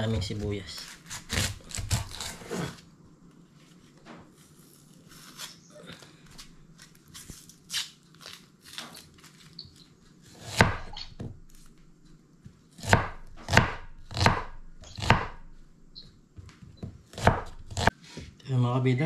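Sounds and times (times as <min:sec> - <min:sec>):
knife scraping onion skin: 0:00.5 - 0:02.8, 0:04.4 - 0:11.6
knife striking chopping board: 0:10.4 - 0:11.4, 0:12.8 - 0:15.4, 0:17.1 - 0:17.9.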